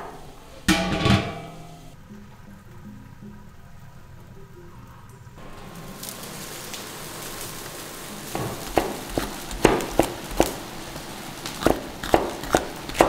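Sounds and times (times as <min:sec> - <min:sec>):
wok sizzling: 0:00.0 - 0:02.0, 0:05.4 - 0:13.0
cleaver chopping on wooden board: 0:08.4 - 0:10.6, 0:11.6 - 0:13.0.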